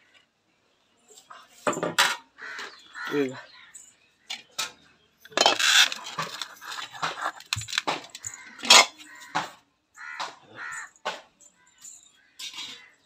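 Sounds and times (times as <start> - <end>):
crow cawing: 2.4 - 3.7, 8.2 - 11.0
metal dishes clattering together: 4.3 - 9.6, 12.4 - 13.0.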